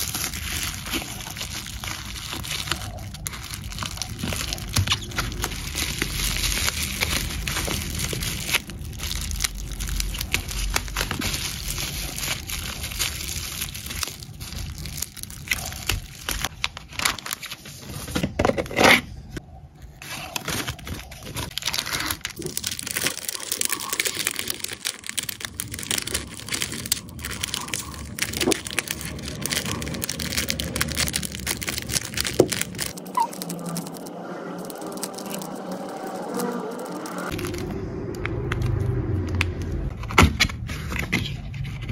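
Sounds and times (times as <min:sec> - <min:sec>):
bubble wrap and plastic crinkling: 0:00.0 - 0:19.0, 0:19.8 - 0:39.7.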